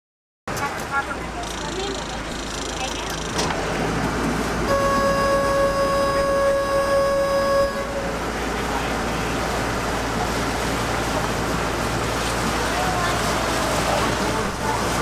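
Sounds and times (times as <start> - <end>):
boat engine rumble: 0.5 - 15.0
water washing: 0.5 - 15.0
boat horn blast: 4.7 - 9.5.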